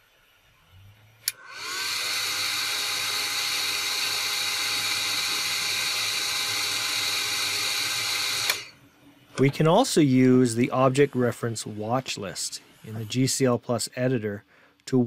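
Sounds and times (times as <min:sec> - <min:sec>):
small fan motor whining: 0:00.5 - 0:09.5.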